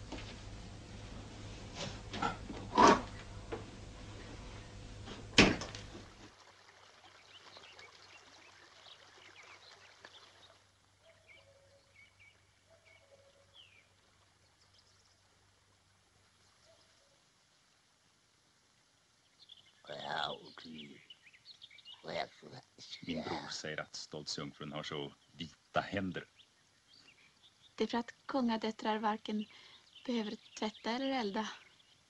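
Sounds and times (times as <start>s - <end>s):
low hum: 0.0s - 6.3s
bird chirps: 11.0s - 14.0s.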